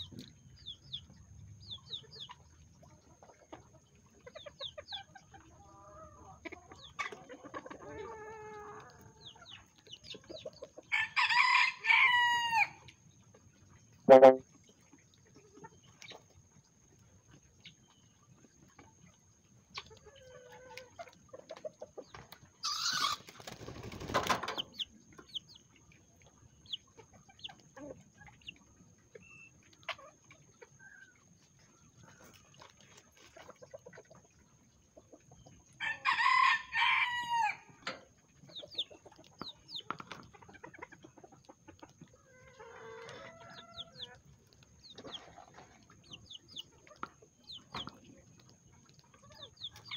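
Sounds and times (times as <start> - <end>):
chickens clucking softly: 0.0 - 49.9
rooster crowing: 10.9 - 12.8, 35.8 - 37.7.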